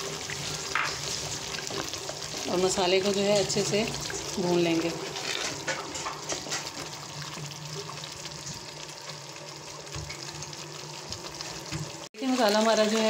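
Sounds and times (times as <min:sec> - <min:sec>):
wooden spatula stirring: 0:00.0 - 0:08.4
masala sizzling in hot oil: 0:00.0 - 0:13.0.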